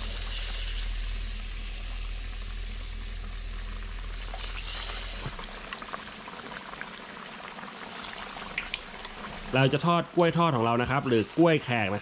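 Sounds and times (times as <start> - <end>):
low hum: 0.0 - 6.3
food sizzling in deep-frying oil: 0.0 - 12.0
oil crackles and pops: 0.0 - 12.0.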